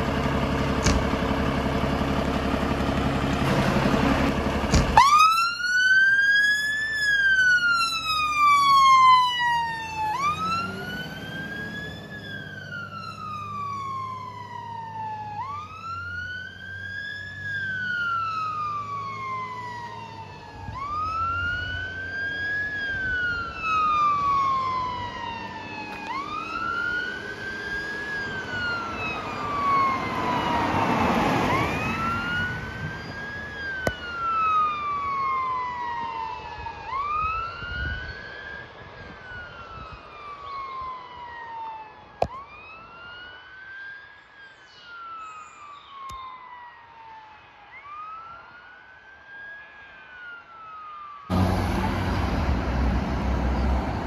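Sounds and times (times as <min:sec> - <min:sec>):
fire engine idling: 0:00.0 - 0:05.5
wailing siren: 0:00.0 - 0:54.0.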